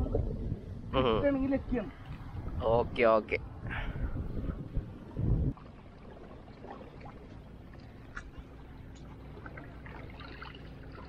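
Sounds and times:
low wash of water: 0:03.5 - 0:11.0.

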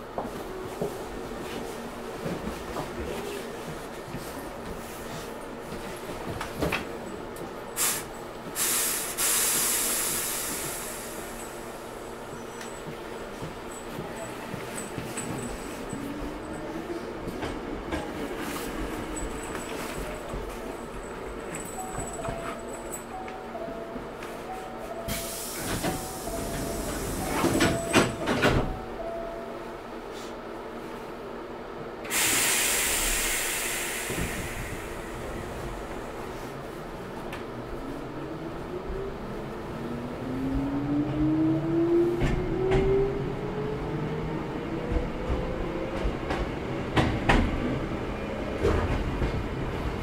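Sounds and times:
train air system hissing: 0:07.7 - 0:12.1, 0:25.0 - 0:28.2, 0:32.1 - 0:36.5.

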